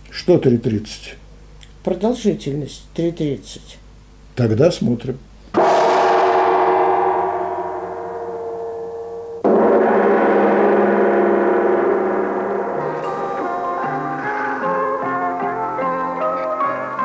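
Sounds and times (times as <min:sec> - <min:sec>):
gong-like metallic strikes: 0:05.6 - 0:15.9.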